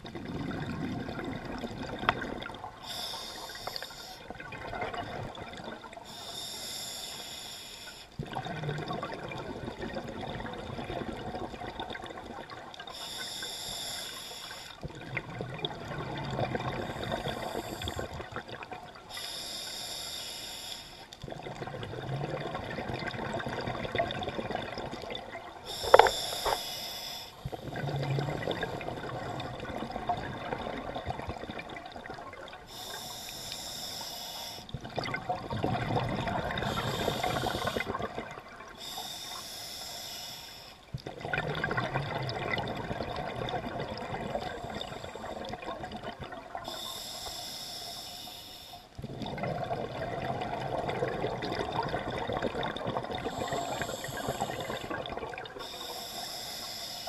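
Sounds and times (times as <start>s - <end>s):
diver inhaling through regulator hiss: 2.8s - 4.3s, 6.0s - 8.2s, 12.9s - 14.8s, 16.8s - 18.2s, 19.1s - 21.1s, 25.7s - 27.6s, 32.7s - 34.8s, 36.6s - 38.0s, 38.8s - 40.9s, 46.6s - 49.0s, 53.2s - 55.0s, 55.6s - 57.0s
bubbling exhale: 12.9s - 57.0s.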